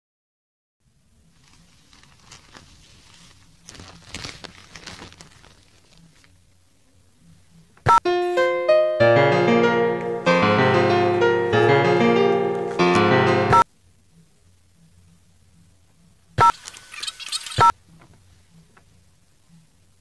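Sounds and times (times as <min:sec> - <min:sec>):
paper crinkling: 0:01.3 - 0:06.4
piano music: 0:08.0 - 0:13.6.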